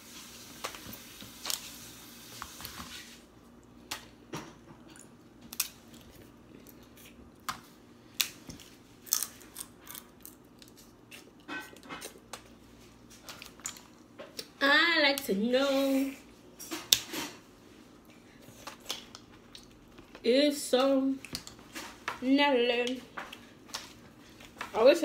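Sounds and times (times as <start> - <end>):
chewing: 18.1 - 20.2.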